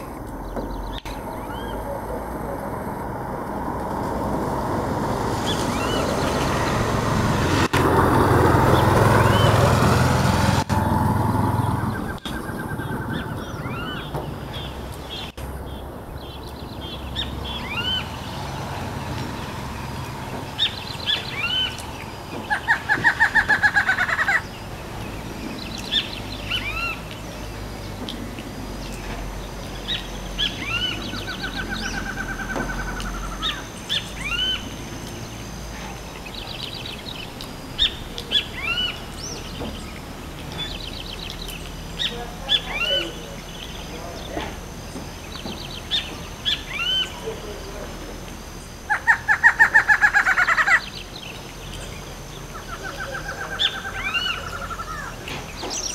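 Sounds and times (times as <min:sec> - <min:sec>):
bird song of rapid repeated notes: 0:00.0 - 0:02.9, 0:05.3 - 0:09.8, 0:11.4 - 0:55.9.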